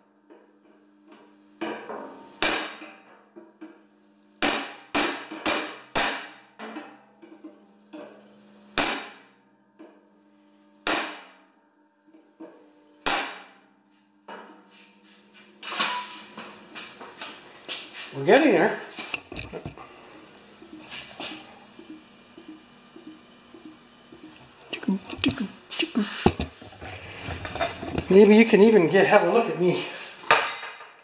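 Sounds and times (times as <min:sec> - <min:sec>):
hammer striking a punch on metal: 0:02.4 - 0:03.0, 0:04.4 - 0:06.4, 0:08.8 - 0:09.3, 0:10.8 - 0:11.4, 0:13.0 - 0:13.6.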